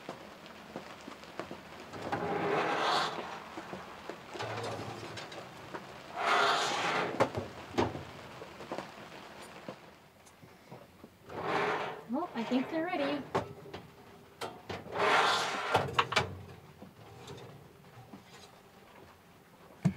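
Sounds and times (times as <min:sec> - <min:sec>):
pan scraping into oven: 0:02.0 - 0:03.5, 0:04.4 - 0:07.4, 0:11.3 - 0:13.4, 0:14.8 - 0:16.4.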